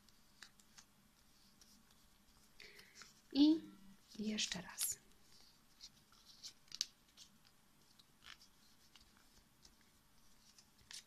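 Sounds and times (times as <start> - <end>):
paper rustling and crinkling: 4.0 - 11.0.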